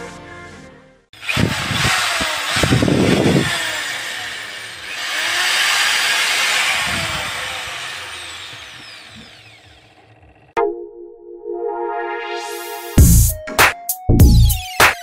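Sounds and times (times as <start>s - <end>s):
loud mechanical whir: 1.2s - 10.6s.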